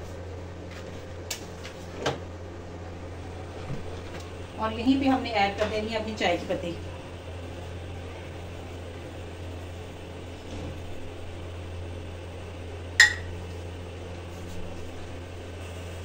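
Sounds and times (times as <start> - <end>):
kitchen room hum: 0.0 - 16.0
sharp ringing clink: 13.0 - 13.3.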